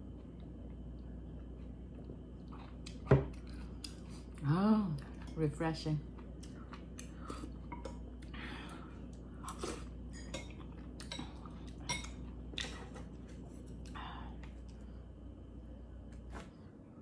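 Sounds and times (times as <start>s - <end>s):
chewing: 0.2s - 4.4s, 6.0s - 8.3s.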